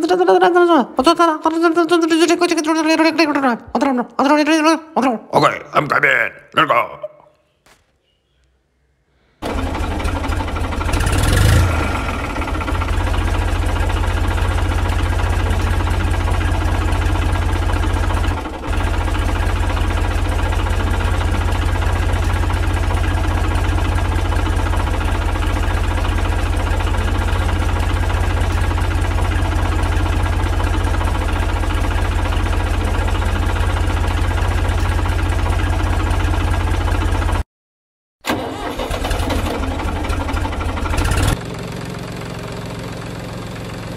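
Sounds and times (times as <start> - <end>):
tractor engine idling: 9.4 - 37.4, 38.3 - 43.9.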